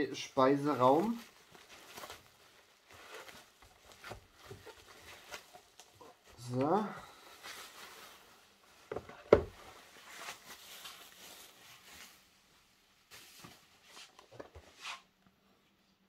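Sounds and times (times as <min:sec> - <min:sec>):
plastic packaging rustling: 0:00.5 - 0:12.5.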